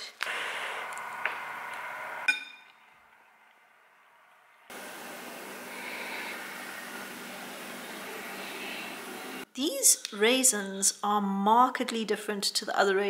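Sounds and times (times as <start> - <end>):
faint steady hiss: 4.7 - 9.5.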